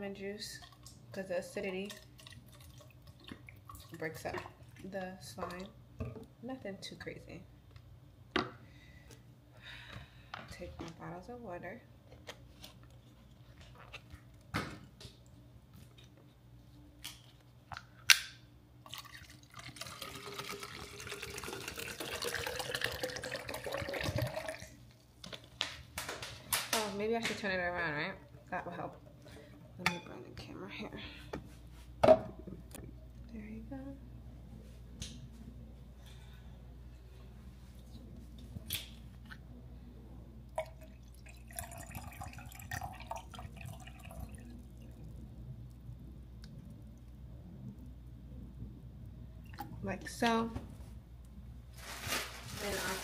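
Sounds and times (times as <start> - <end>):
water pouring into a cup: 1.8 - 4.8, 18.8 - 24.8, 40.5 - 45.3.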